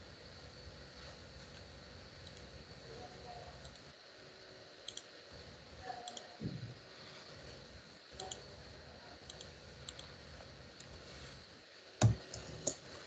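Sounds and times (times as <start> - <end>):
computer mouse clicks: 2.2 - 2.5, 4.8 - 5.1, 6.1 - 6.3, 8.2 - 8.4, 9.2 - 10.1, 12.0 - 12.8.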